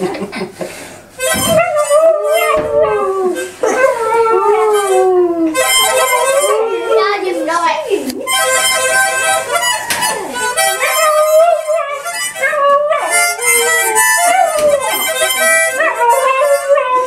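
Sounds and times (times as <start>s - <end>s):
harmonica chords: 0.7s - 17.0s
dog howling: 1.4s - 7.4s, 9.5s - 17.0s.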